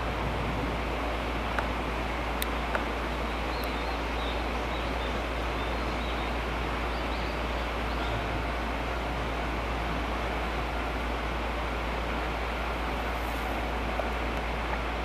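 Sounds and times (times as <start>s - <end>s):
outdoor rushing noise: 0.0s - 3.4s
faint high bird chirps: 3.2s - 8.3s.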